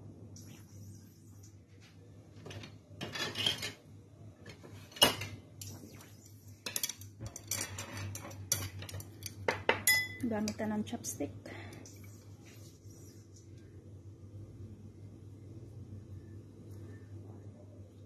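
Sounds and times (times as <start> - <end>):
faint steady hum: 0.0 - 18.0
kitchenware clinking against saucepan: 3.0 - 3.8, 6.7 - 10.6.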